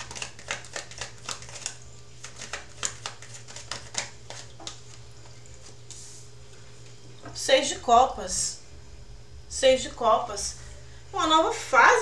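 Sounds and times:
cards being shuffled: 0:00.0 - 0:06.2.

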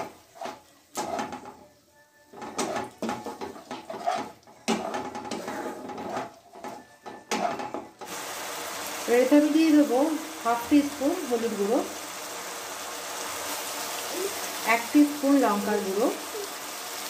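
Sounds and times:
spatula scraping a pan: 0:00.0 - 0:01.6, 0:02.3 - 0:08.1.

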